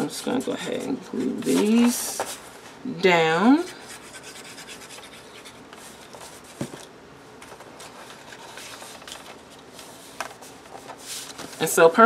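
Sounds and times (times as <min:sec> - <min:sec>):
paper rustling and sliding: 0:07.4 - 0:11.7.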